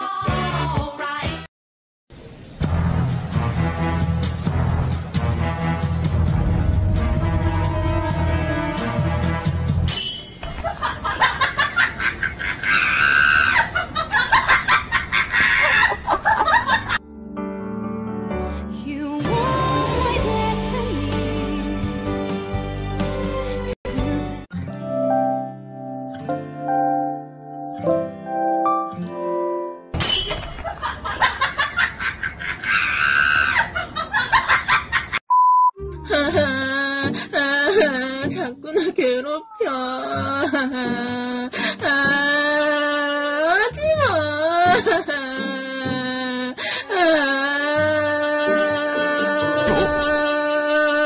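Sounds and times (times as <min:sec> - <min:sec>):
music: 0:00.0 - 0:01.5, 0:02.6 - 0:10.0, 0:17.0 - 0:30.0, 0:35.8 - 0:51.0
drawn-out squawk: 0:32.6 - 0:33.7
censor bleep: 0:35.3 - 0:35.8
comedy backing track: 0:48.0 - 0:50.5.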